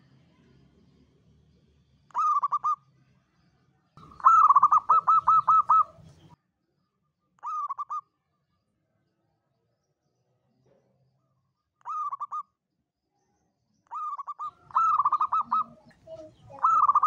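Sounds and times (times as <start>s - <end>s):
dove cooing: 2.1s - 2.8s, 4.0s - 6.3s, 11.9s - 12.4s, 13.9s - 17.0s.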